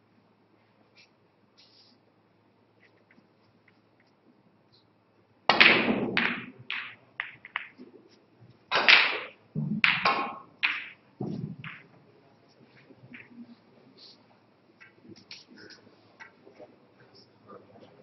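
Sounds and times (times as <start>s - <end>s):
cue striking ball: 5.5s - 7.8s, 8.7s - 11.9s
snooker balls clacking: 5.5s - 8.1s, 8.7s - 12.0s.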